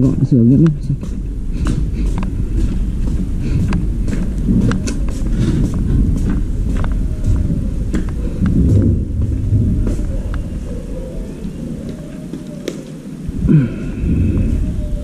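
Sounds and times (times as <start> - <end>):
footsteps on concrete: 0.0 - 10.8
steady low rumble: 0.0 - 12.1, 13.0 - 15.0.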